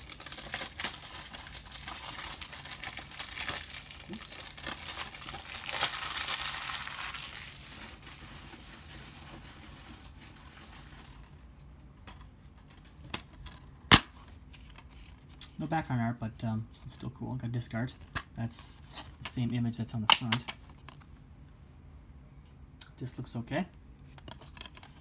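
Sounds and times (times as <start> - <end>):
plastic wrap tearing and crinkling: 0.0 - 11.2.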